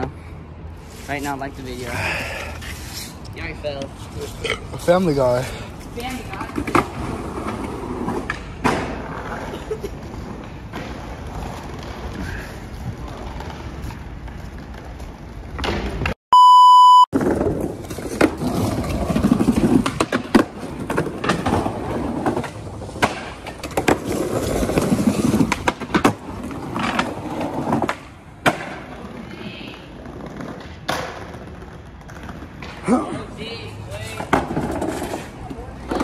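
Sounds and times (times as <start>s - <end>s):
skateboard wheels rolling: 0.6s - 16.2s, 17.2s - 36.0s
skateboard clacks: 6.0s - 12.3s, 17.2s - 36.0s
loud electronic beep: 16.3s - 17.1s.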